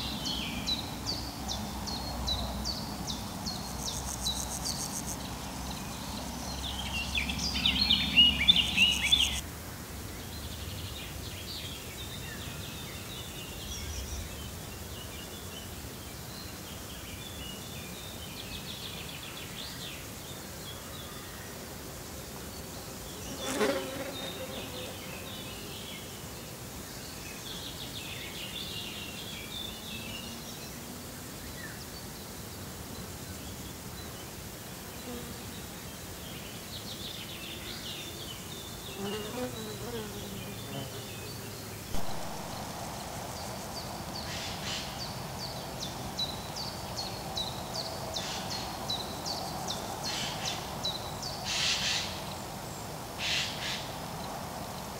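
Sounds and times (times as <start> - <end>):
insects buzzing: 0.0 - 54.9
bird chirps: 6.5 - 9.4.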